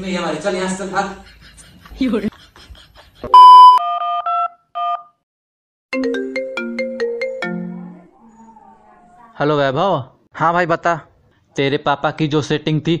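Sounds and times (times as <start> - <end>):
loud electronic beep: 3.3 - 3.8
short electronic tones: 3.3 - 4.0
phone ringtone melody: 3.4 - 5.1, 6.0 - 7.9.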